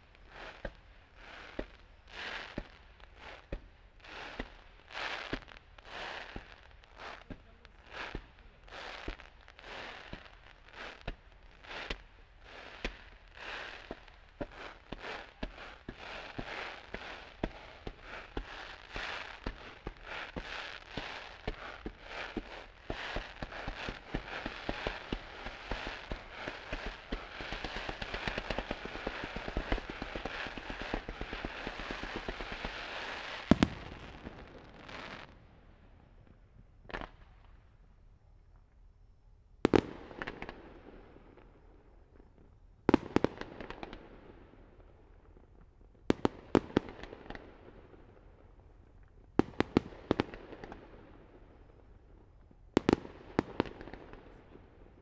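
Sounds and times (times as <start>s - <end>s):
fireworks crackling and fizzing: 0.0s - 37.6s
firework bursts echoing: 12.6s - 36.0s.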